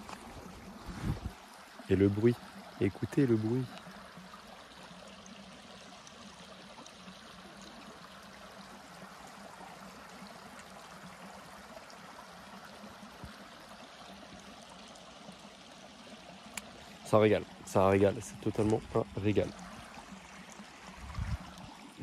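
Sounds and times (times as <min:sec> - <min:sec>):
river water rushing and trickling: 0:00.0 - 0:22.0.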